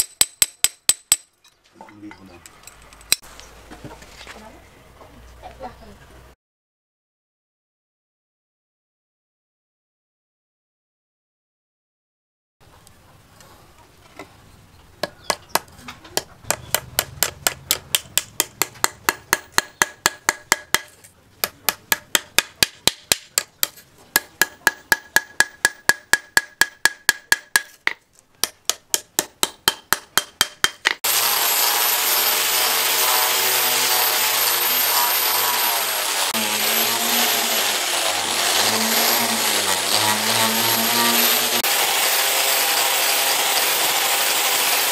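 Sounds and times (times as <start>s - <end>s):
hammer striking metal pins: 0.0s - 1.3s, 15.0s - 31.0s
angle grinder running: 31.0s - 44.9s.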